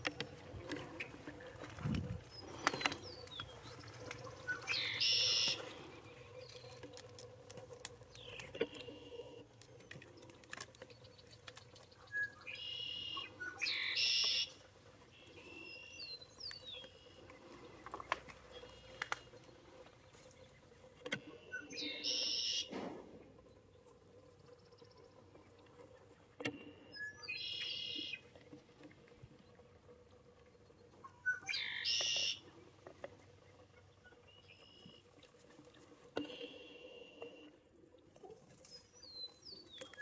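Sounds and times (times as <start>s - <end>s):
small birds chirping: 2.2s - 7.3s, 8.0s - 20.9s, 30.5s - 32.4s
high-pitched bird song: 4.5s - 5.7s, 12.0s - 14.6s, 21.5s - 22.7s, 26.9s - 28.2s, 31.0s - 32.4s.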